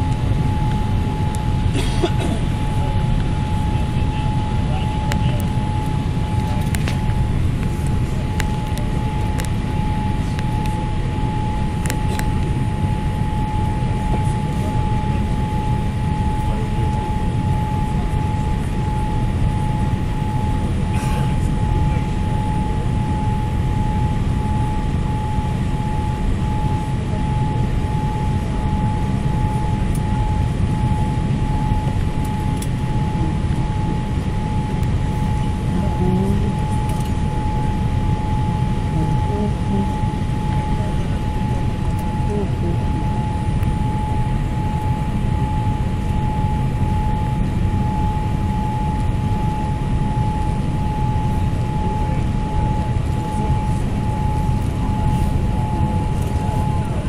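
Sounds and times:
aircraft cabin engine rumble: 0.0 - 57.0
high whine: 0.0 - 57.0.

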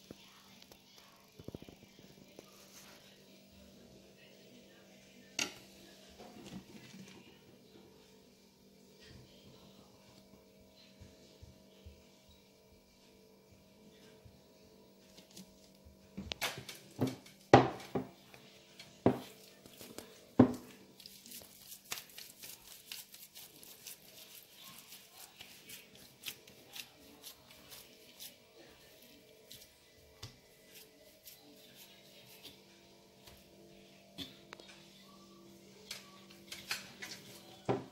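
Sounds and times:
hands kneading wet dough: 19.2 - 33.5.

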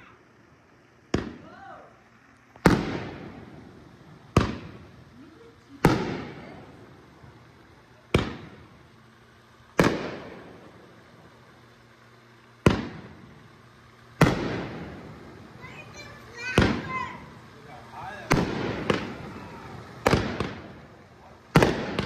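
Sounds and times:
fireworks bangs with echo: 1.1 - 1.6, 2.6 - 8.9, 9.7 - 11.1, 12.6 - 13.6, 14.2 - 22.0.

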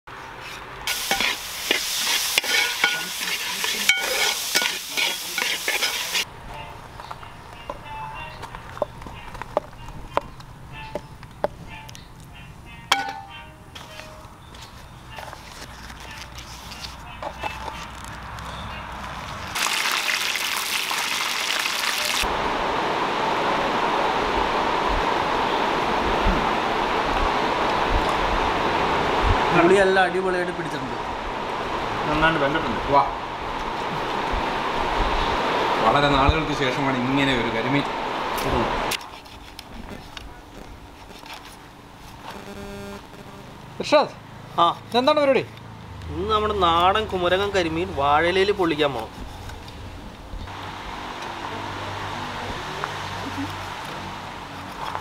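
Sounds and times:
metal spatula scraping a pan: 0.4 - 6.3
food sizzling in a pan: 0.9 - 6.3, 19.6 - 22.3
leaf crackling being folded: 14.7 - 18.4, 38.9 - 42.4.

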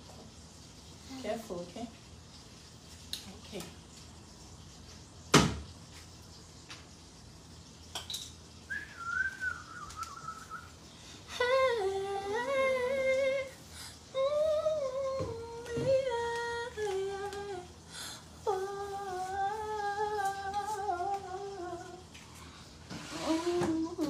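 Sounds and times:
person humming: 11.3 - 13.5, 18.4 - 22.0, 23.1 - 24.0.

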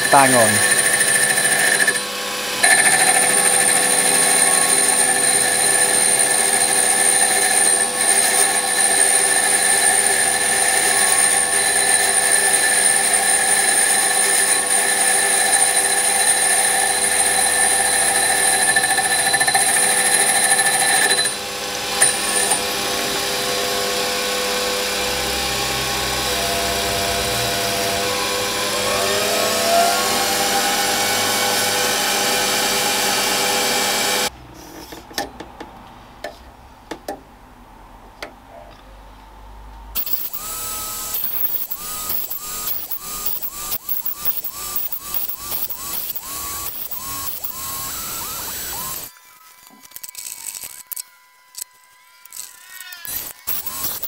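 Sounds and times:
lathe running with a whine: 0.0 - 34.3, 40.0 - 49.8.

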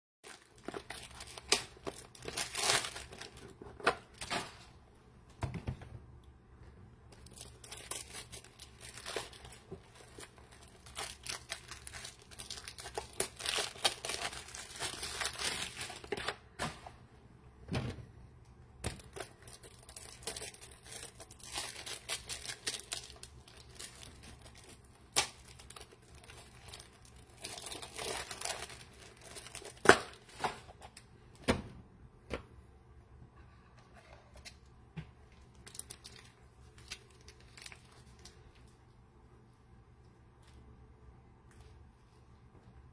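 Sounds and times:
crinkling and rustling: 0.2 - 4.8, 7.1 - 17.0, 18.8 - 31.1, 33.8 - 38.8.

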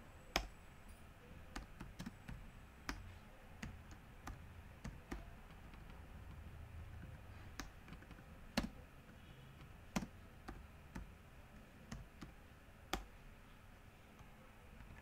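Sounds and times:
mouse and keyboard clicks: 1.5 - 13.2.

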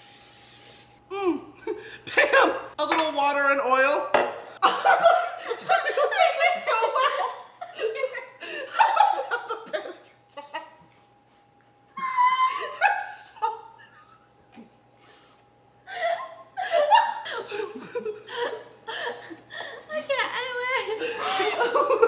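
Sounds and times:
people laughing: 4.6 - 10.6, 15.9 - 22.0.

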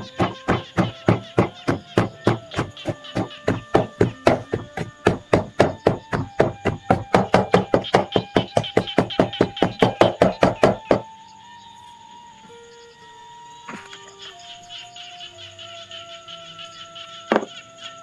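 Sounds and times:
pestle pounding in wooden mortar: 0.0 - 11.0.

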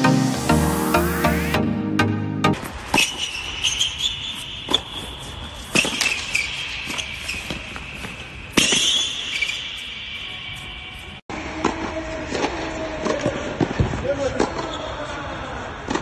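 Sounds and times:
tennis ball hit by racquet: 8.5 - 9.9.

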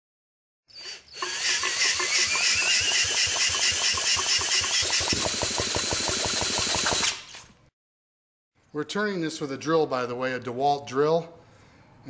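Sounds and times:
drill motor whine: 0.7 - 7.2
engine pulsing while cranked: 1.2 - 7.0.

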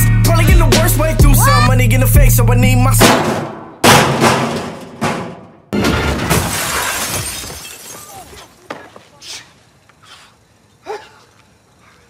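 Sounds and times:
window glass shattering: 3.8 - 8.6.

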